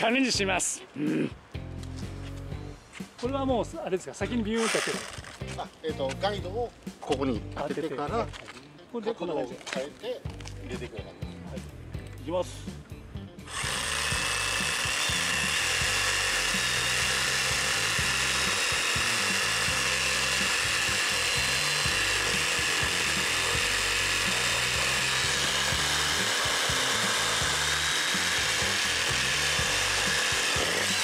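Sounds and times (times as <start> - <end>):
reciprocating saw cutting wood: 4.6 - 5.5, 13.5 - 31.0.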